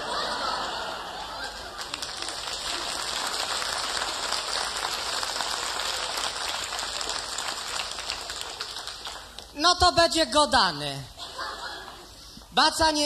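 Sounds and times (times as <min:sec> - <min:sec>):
audience applauding: 0:00.1 - 0:09.6.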